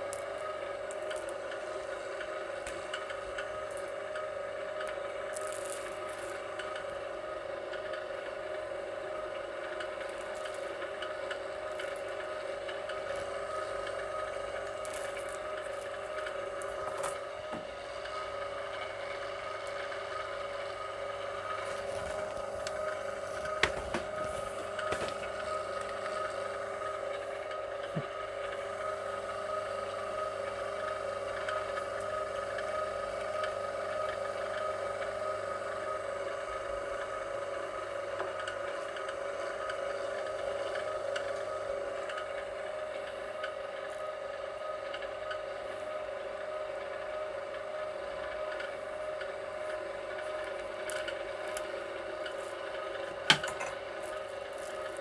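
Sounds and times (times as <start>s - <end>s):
wire scraping through machine: 0.0s - 18.9s, 50.2s - 55.0s
wire-stripping machine motor whine: 0.0s - 55.0s.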